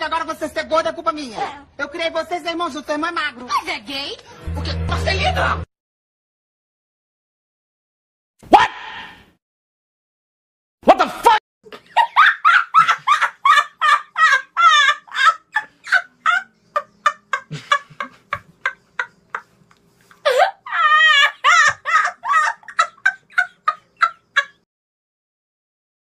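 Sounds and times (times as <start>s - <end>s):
high-pitched cackling laughter: 11.8s - 19.5s, 20.2s - 24.7s.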